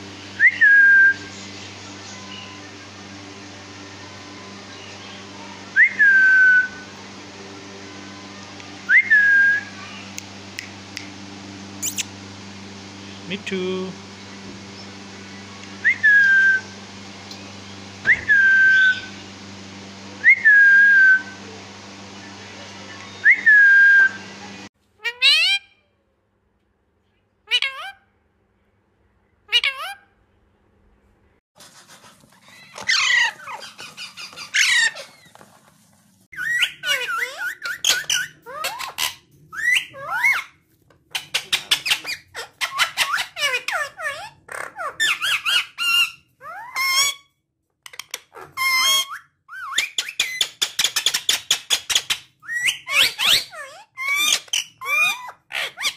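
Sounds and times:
parakeets squawking and chirping: 0:11.8 - 0:12.2, 0:29.5 - 0:30.0, 0:32.5 - 0:35.4, 0:36.3 - 0:47.2, 0:47.9 - 0:55.9.

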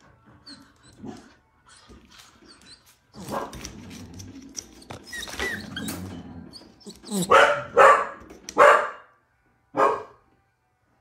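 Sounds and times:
dog whining: 0:00.2 - 0:07.7.

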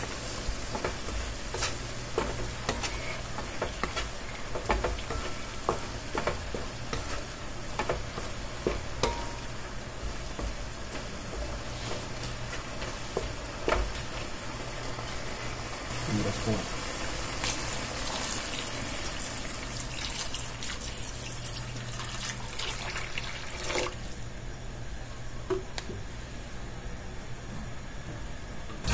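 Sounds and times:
spatula scraping and knocking pan: 0:00.0 - 0:14.3
meat sizzling in a wok: 0:00.0 - 0:24.3.

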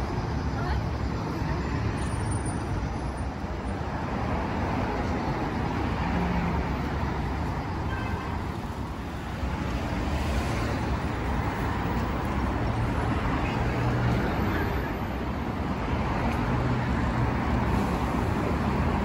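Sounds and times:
road traffic: 0:00.0 - 0:19.0.

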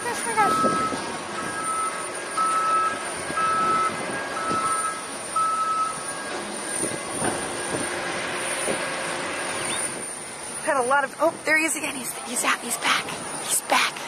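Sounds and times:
backup alarm beeping: 0:00.0 - 0:08.0
engine noise: 0:00.0 - 0:14.0.

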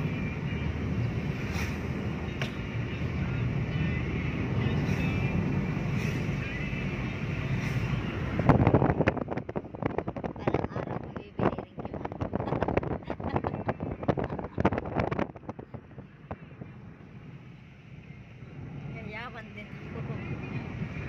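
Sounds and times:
car cabin road rumble: 0:00.0 - 0:21.0
wind buffeting microphone: 0:07.8 - 0:17.0.

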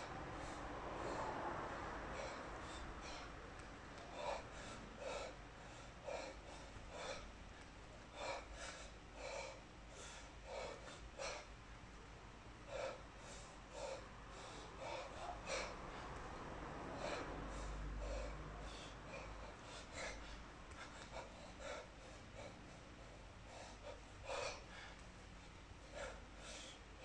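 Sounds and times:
person breathing hard: 0:00.0 - 0:27.0.

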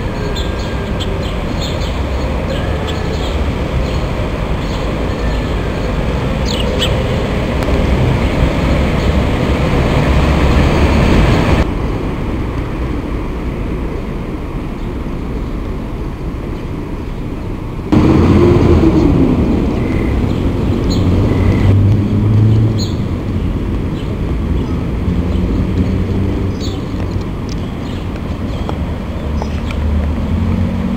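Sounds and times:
sparrows chirping: 0:00.0 - 0:07.4, 0:19.7 - 0:29.9
heavy vehicle passing: 0:00.0 - 0:30.9
passing vehicles: 0:00.0 - 0:30.9.

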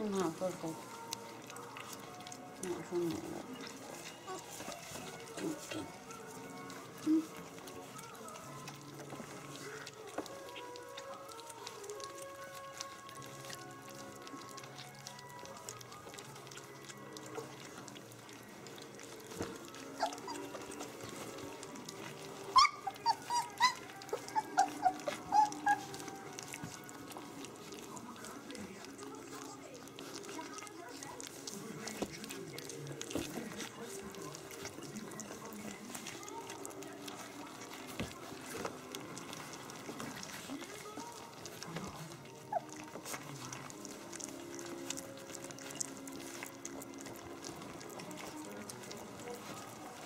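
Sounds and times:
puppy whimpering: 0:00.0 - 0:50.0
puppy squeak: 0:19.9 - 0:20.9, 0:22.5 - 0:26.2, 0:42.4 - 0:43.3.

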